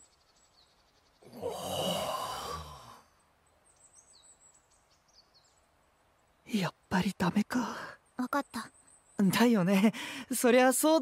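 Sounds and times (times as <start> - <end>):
person sighing: 1.3 - 3.1.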